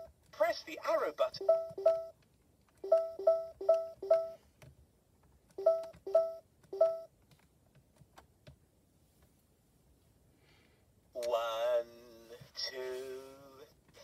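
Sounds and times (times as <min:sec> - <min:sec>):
two-tone electronic toy beeps: 0:01.4 - 0:02.2, 0:02.8 - 0:04.4, 0:05.6 - 0:07.1.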